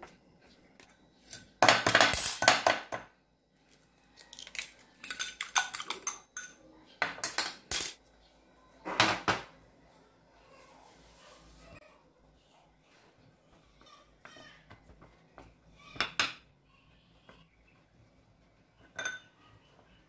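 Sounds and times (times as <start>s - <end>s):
dishes clinking: 5.0s - 8.0s, 18.8s - 19.5s.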